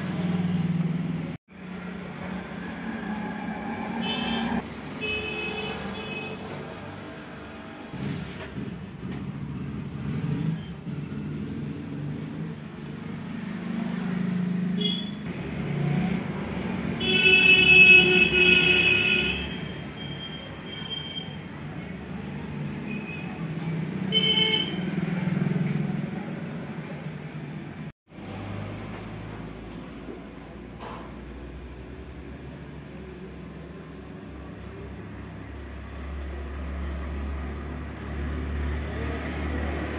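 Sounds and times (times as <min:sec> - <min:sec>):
road traffic rumbling: 0:00.0 - 0:39.9
vehicle horn: 0:02.8 - 0:06.6, 0:17.0 - 0:19.8, 0:24.1 - 0:24.9.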